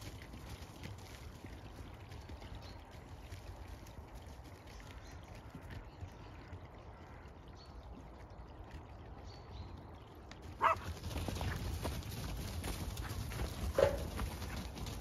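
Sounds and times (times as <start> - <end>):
dog barking: 10.6 - 10.9, 13.7 - 14.2.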